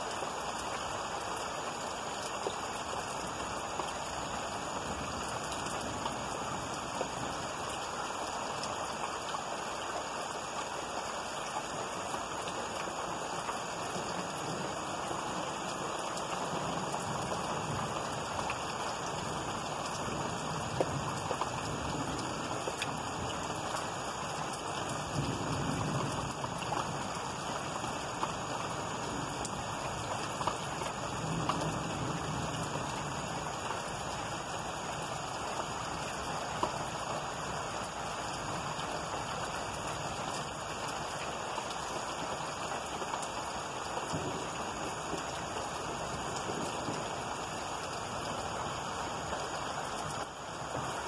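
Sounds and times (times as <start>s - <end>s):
heavy rain falling: 0.0s - 51.0s
thunder rumbling: 44.0s - 45.3s.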